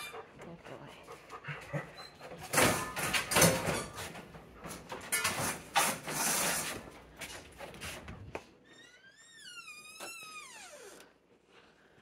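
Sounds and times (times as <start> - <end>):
dog panting: 0.0 - 2.5
door clattering: 2.4 - 6.3.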